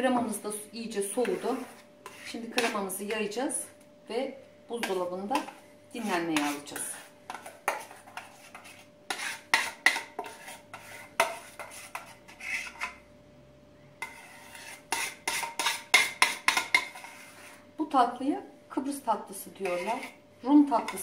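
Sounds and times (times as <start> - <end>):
spoon scraping metal saucepan: 0.8 - 3.4, 4.7 - 13.1, 14.0 - 17.7, 19.3 - 21.0.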